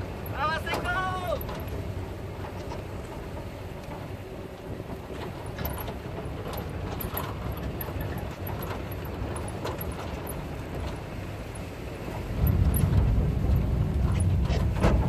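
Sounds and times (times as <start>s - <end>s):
vehicle rumble and road noise: 0.0s - 15.0s
light clicks and knocks: 0.2s - 11.7s.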